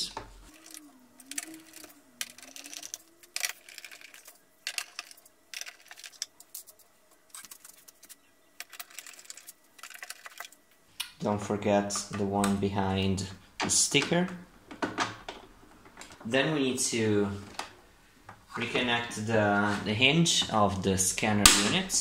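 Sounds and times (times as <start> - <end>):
plastic being handled: 0.2 - 10.6.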